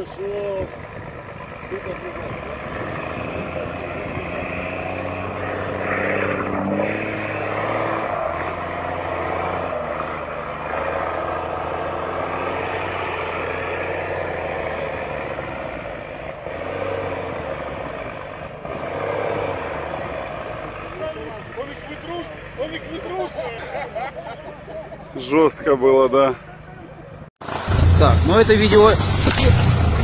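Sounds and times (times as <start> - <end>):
truck engine working hard: 27.4 - 30.0.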